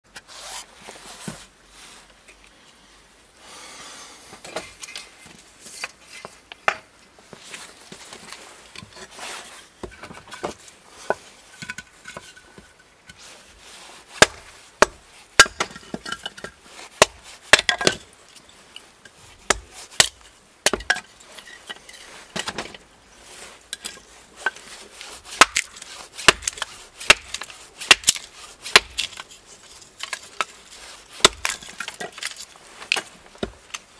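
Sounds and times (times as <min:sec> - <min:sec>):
hatchet chopping wood: 0:14.2 - 0:16.1, 0:17.0 - 0:18.0, 0:19.5 - 0:21.1, 0:25.3 - 0:29.2, 0:31.2 - 0:33.7.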